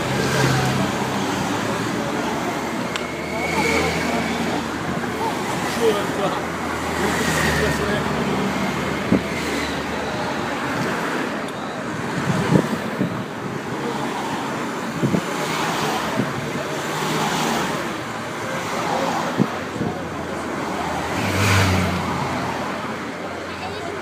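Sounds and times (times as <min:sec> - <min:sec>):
cars passing: 0:00.0 - 0:24.0
crowd chatter: 0:00.0 - 0:24.0.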